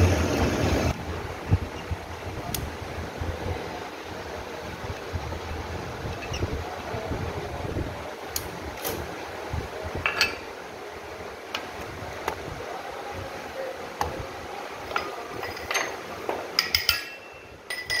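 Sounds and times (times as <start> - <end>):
metal clinks and taps: 14.9 - 18.0
metal ringing: 16.6 - 18.0.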